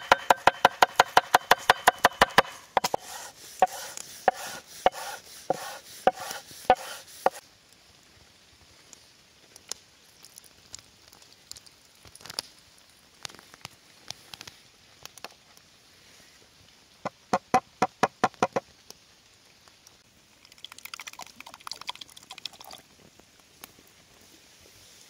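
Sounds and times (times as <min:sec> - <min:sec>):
cleaver knocking on wooden bowl: 0:00.0 - 0:07.4, 0:17.1 - 0:18.6
crackly patter: 0:07.4 - 0:24.7.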